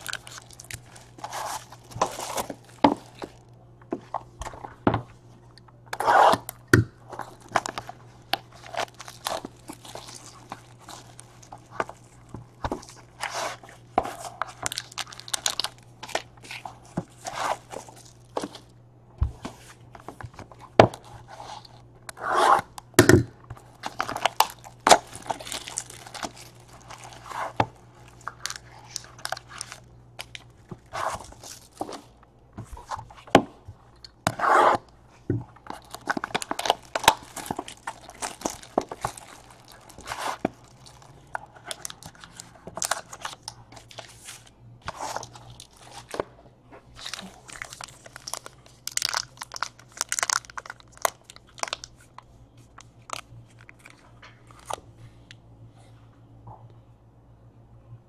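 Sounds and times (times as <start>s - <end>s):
wrapping tearing and crinkling: 0.0s - 3.6s, 5.9s - 18.7s, 23.5s - 33.3s, 34.1s - 54.8s
faint low hum: 0.0s - 58.0s
cardboard scraping: 1.0s - 3.3s, 6.0s - 6.4s, 21.1s - 22.7s, 34.3s - 34.8s.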